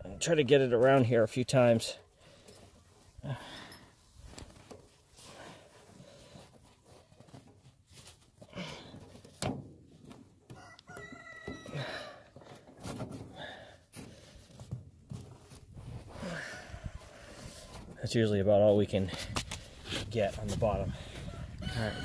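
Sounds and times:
rooster crowing: 0:10.5 - 0:12.2, 0:21.2 - 0:22.0.

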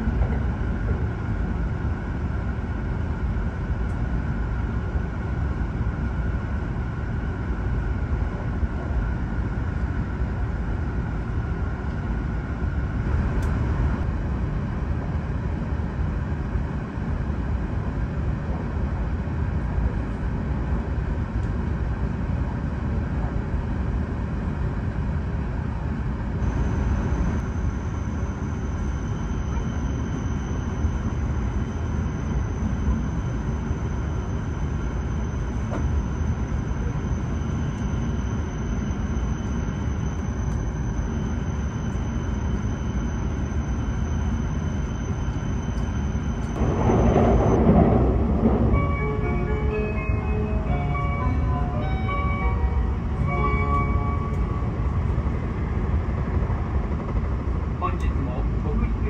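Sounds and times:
train rumbling on track: 0:00.0 - 0:59.0
faint high tone: 0:48.8 - 0:54.9.

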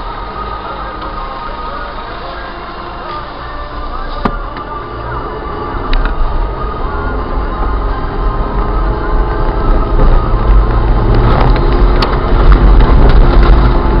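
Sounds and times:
car engine running: 0:00.0 - 0:14.0
tyres rumbling on gravel: 0:09.5 - 0:14.0.

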